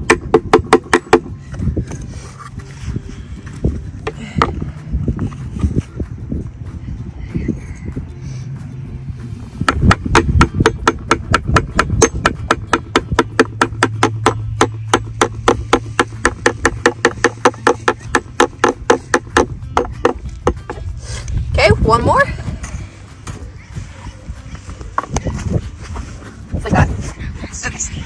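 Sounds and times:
hammer tapping plastic: 0:09.6 - 0:20.8.

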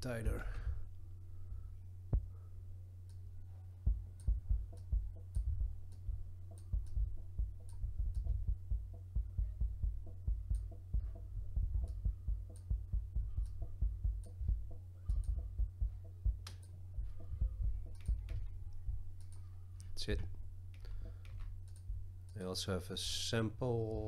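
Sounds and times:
double kick drum hits: 0:03.9 - 0:16.4, 0:17.0 - 0:19.0.

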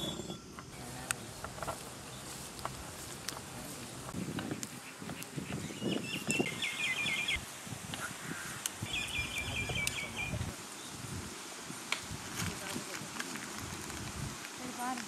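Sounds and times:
songbird chirping: 0:00.0 - 0:11.6.

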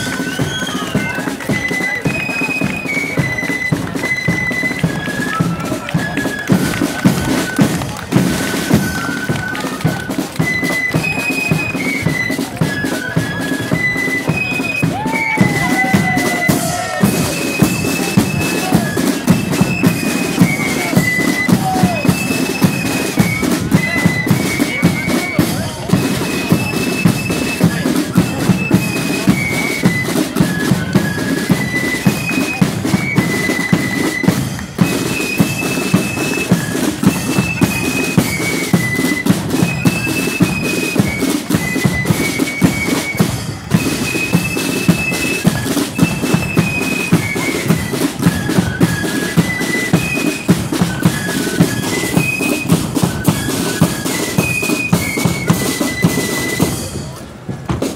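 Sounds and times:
high flute melody: 0:00.0 - 0:57.4
side drums and bass drum: 0:14.8 - 0:57.9.

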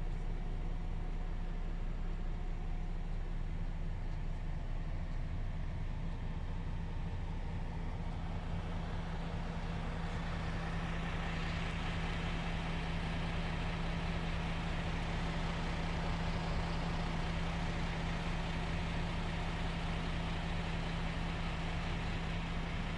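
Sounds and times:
truck diesel engine idling: 0:00.0 - 0:22.9.

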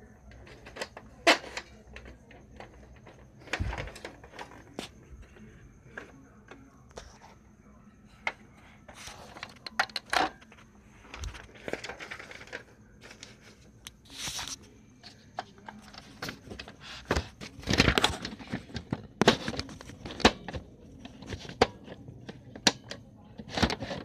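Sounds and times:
paper rustling: 0:08.2 - 0:22.0.

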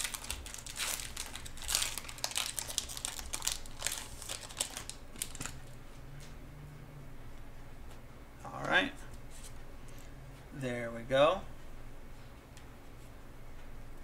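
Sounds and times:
foil wrapper crinkling: 0:00.0 - 0:05.7.

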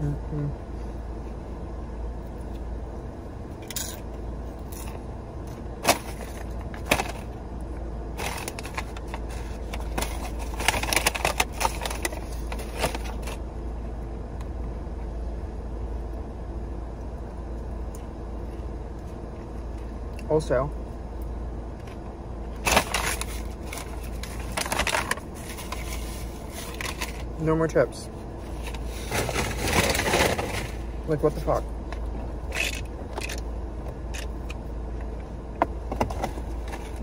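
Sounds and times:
car cabin hum: 0:00.0 - 0:37.0
paper bag crinkling and rustling: 0:08.2 - 0:13.4, 0:22.6 - 0:27.3, 0:28.5 - 0:30.9.

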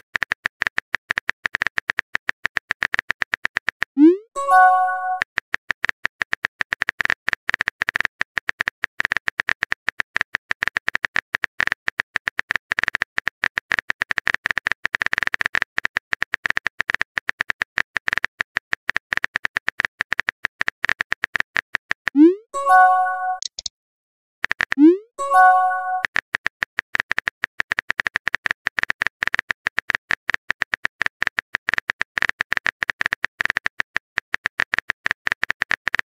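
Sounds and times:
keyboard typing clicks: 0:04.0 - 0:05.2, 0:22.2 - 0:23.7, 0:24.7 - 0:26.1.

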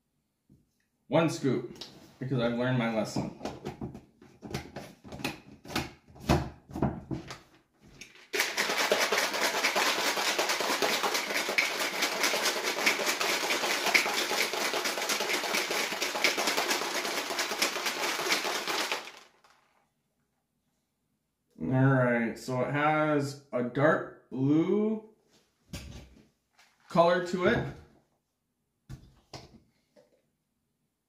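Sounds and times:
ice rattling in shaker cup: 0:08.1 - 0:19.6.

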